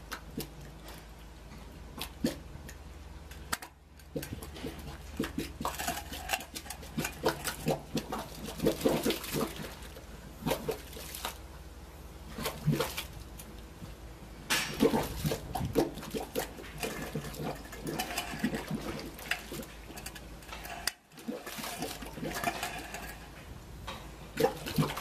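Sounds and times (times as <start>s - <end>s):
steady low hum: 0.0s - 25.0s
air bubbling through water: 14.7s - 20.1s, 21.1s - 23.3s.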